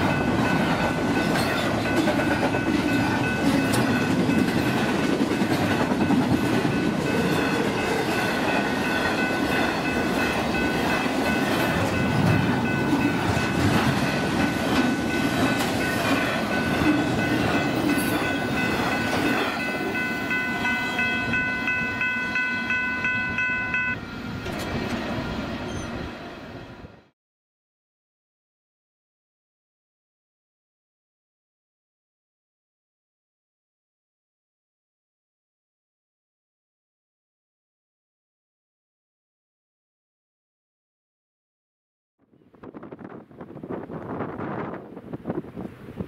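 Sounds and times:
crossing bell ringing: 0.0 - 24.0
freight train rumbling and rattling: 0.0 - 27.1, 42.5 - 46.0.

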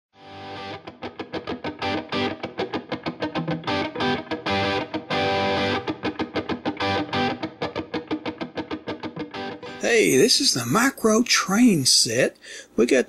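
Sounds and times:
distorted electric guitar: 0.2 - 9.8.

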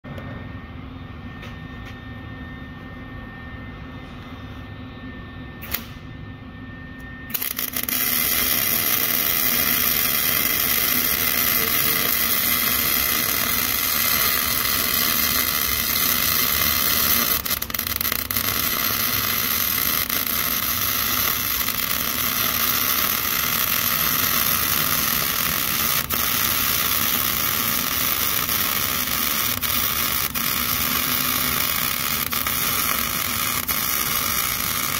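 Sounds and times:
click: 5.6 - 6.0
arc welder crackling hiss: 7.3 - 34.9.

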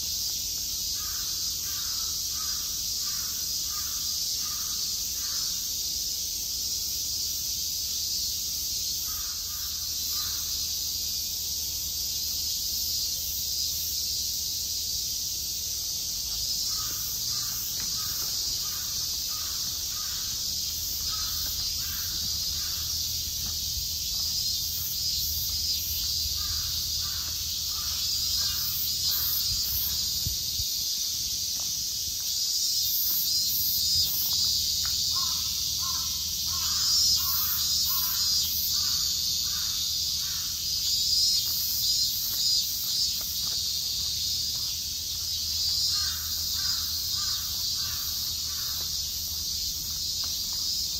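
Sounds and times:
high-pitched insect chorus: 0.0 - 50.9
crow cawing: 1.0 - 5.6, 9.0 - 10.5, 16.7 - 23.0, 26.4 - 29.4, 35.1 - 40.6, 45.9 - 49.0.

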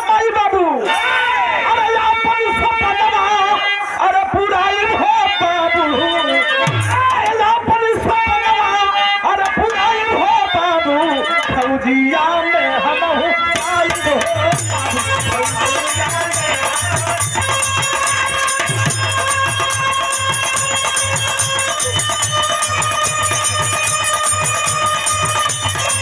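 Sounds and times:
fast high percussion: 6.1 - 8.6, 13.5 - 26.0
held melody line: 12.6 - 26.0.

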